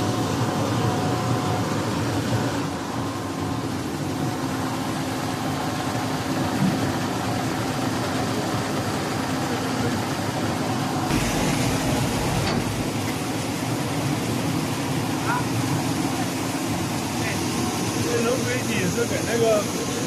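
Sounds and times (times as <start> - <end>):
machine motors humming: 10.8 - 14.9
rush of noise with low rumble: 11.1 - 14.3.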